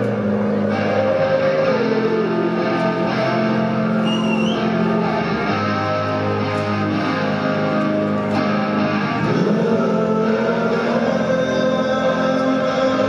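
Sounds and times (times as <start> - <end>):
electric guitar ringing notes: 0.0 - 13.0
live rock band: 0.0 - 13.0
brief high whistle: 4.0 - 4.7.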